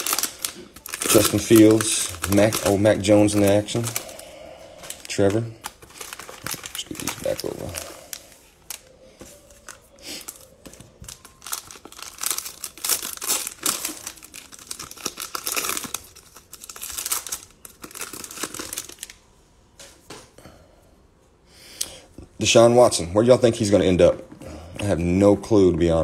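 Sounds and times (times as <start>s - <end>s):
cellophane wrapper crinkling: 0.0s - 19.2s.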